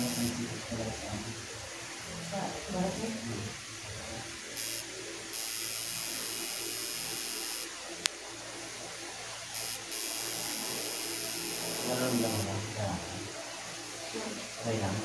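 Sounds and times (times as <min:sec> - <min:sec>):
tattoo machine buzzing: 0:00.0 - 0:00.4, 0:04.5 - 0:07.8, 0:09.5 - 0:12.5.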